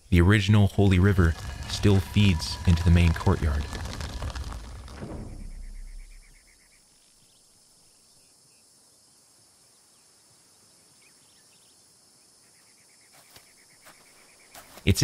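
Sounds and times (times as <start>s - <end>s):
rushing sound: 0.8s - 6.4s
faint bird chirps: 5.4s - 14.9s.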